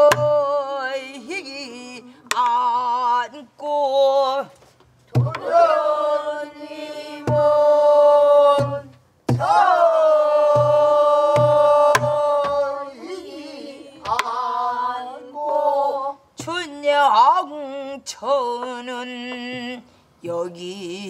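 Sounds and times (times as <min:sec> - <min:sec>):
group singing long held notes: 0:00.0 - 0:01.3, 0:05.2 - 0:16.3
barrel drum thumps and clicks: 0:05.1 - 0:05.5, 0:14.0 - 0:14.3.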